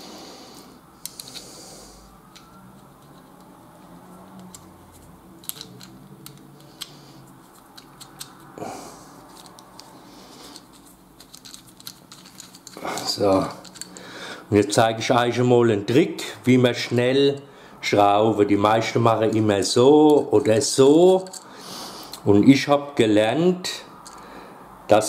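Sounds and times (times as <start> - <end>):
handling rustle: 2.3 - 14.0.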